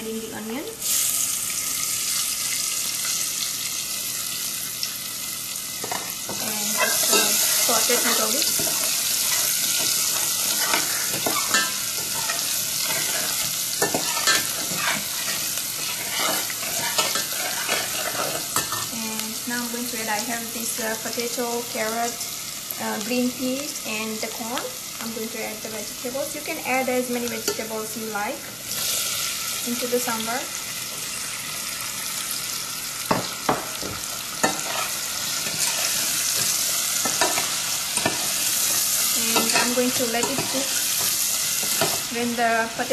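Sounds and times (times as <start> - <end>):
onion and garlic sizzling in oil: 0.0 - 42.9
metal spoon scraping a pan: 5.8 - 18.9, 34.4 - 42.1.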